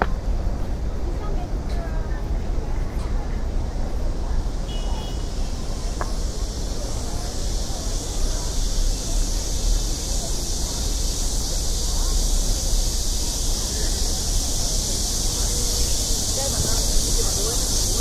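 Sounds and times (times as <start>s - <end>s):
faint voices: 0.0s - 18.0s
low rumble of traffic: 0.0s - 18.0s
high even hiss: 3.9s - 18.0s.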